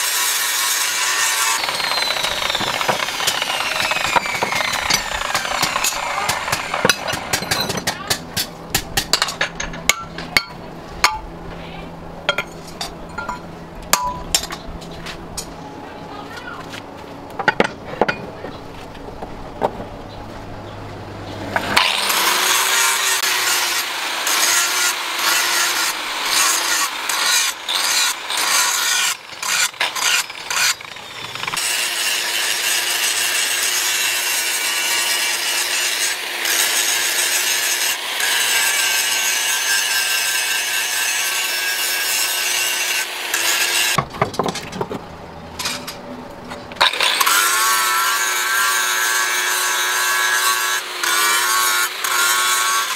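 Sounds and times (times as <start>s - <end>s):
angle grinder grinding metal: 0.0s - 8.2s, 21.6s - 44.0s, 46.8s - 52.9s.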